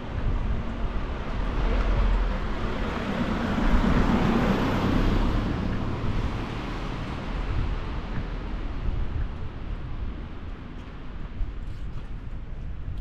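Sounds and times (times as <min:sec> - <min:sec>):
wind buffeting microphone: 0:00.0 - 0:13.0
vehicle passing: 0:01.3 - 0:08.0.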